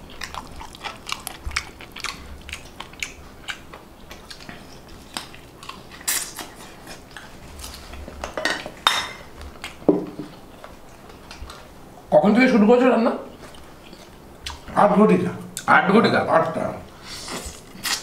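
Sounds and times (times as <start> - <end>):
chewing: 0.0 - 11.8, 13.3 - 14.7
dishes clattering: 8.2 - 10.3.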